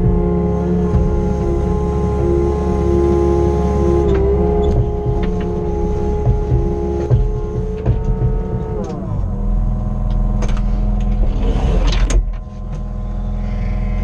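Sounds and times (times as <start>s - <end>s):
diesel engine running: 0.0s - 14.0s
control clicks and knock: 4.0s - 9.1s.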